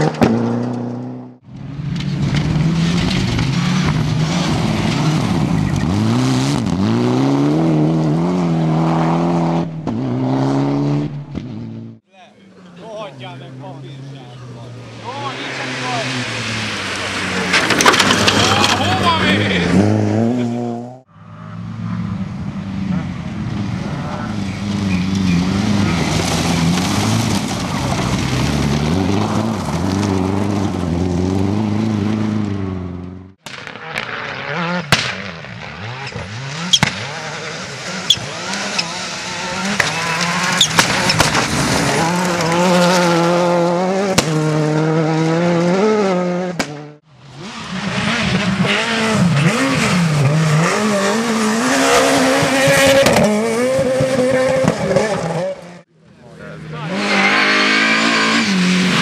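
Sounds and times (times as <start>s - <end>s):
rally car engines at high revs: 0.0s - 12.0s, 13.2s - 59.0s
sharp cracks: 33.4s - 34.3s, 34.9s - 35.6s, 39.6s - 42.6s.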